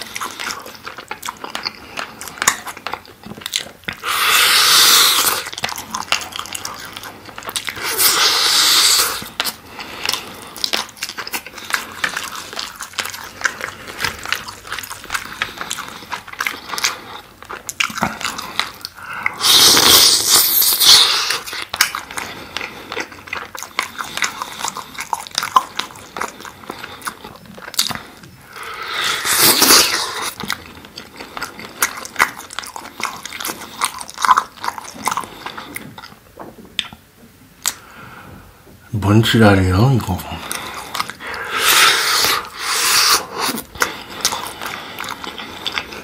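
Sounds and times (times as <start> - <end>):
wet chewing: 0.0 - 46.0
loud slurp: 4.0 - 5.6, 6.5 - 10.5, 18.1 - 21.7, 28.0 - 30.4, 40.4 - 46.0.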